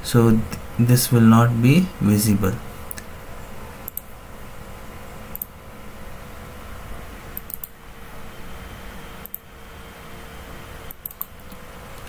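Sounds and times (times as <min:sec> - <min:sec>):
low room and computer hum: 0:00.0 - 0:12.0
computer mouse clicks: 0:03.9 - 0:04.1, 0:05.3 - 0:05.5, 0:07.4 - 0:07.7, 0:09.2 - 0:09.4, 0:10.9 - 0:11.6.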